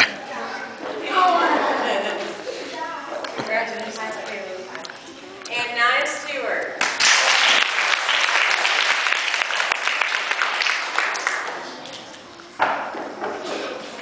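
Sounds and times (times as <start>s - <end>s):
audience applauding: 6.8s - 11.8s.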